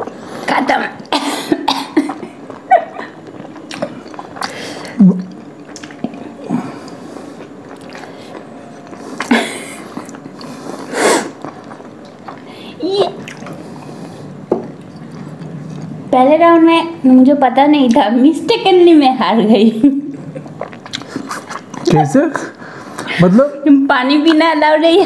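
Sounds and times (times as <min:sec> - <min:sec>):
person coughing: 0:01.1 - 0:02.4, 0:09.3 - 0:10.0
mouth and chewing sounds: 0:02.1 - 0:16.0, 0:20.3 - 0:23.1.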